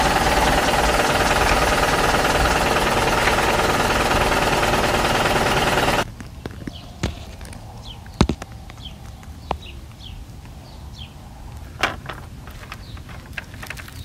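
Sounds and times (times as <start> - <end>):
truck engine rumble: 0.0 - 6.8.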